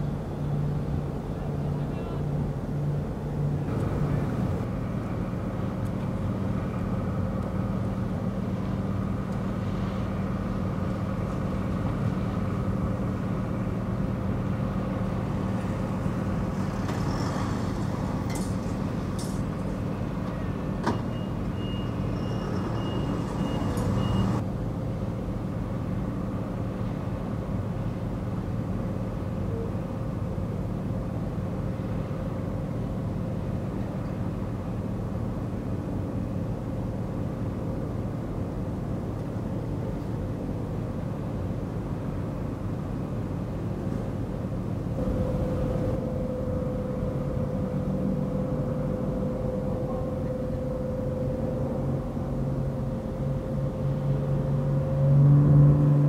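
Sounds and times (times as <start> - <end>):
low engine drone: 0.0 - 56.0
outdoor background noise: 0.0 - 56.0
passing vehicle: 8.5 - 24.4, 43.8 - 56.0
high steady tone: 45.0 - 55.0.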